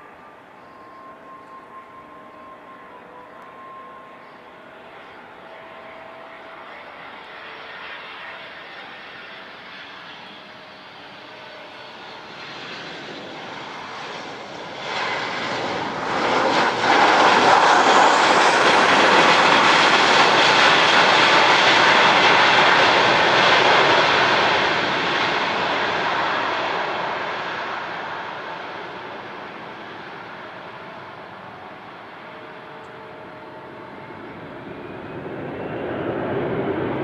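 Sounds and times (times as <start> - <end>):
jet engines on landing roll-out: 0.0 - 37.0.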